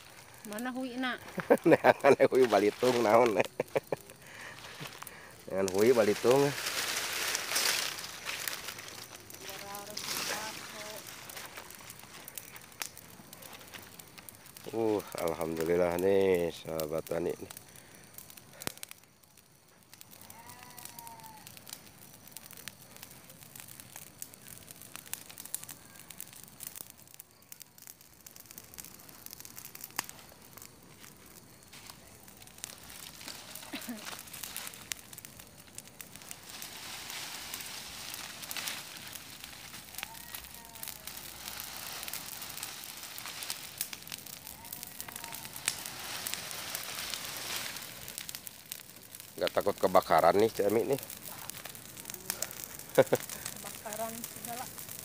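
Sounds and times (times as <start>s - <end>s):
footsteps in leaf litter: 0.0s - 15.5s, 30.9s - 35.1s, 36.1s - 48.6s, 49.9s - 54.7s
dry leaves rustling: 0.0s - 17.5s, 29.0s - 55.0s
fire crackling: 0.0s - 55.0s.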